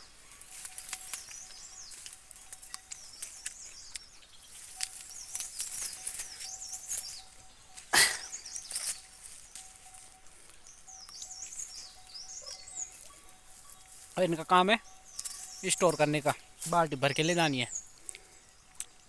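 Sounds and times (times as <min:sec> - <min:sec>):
leaves and branches rustling: 0:00.0 - 0:19.0
small birds chirping: 0:00.0 - 0:19.0.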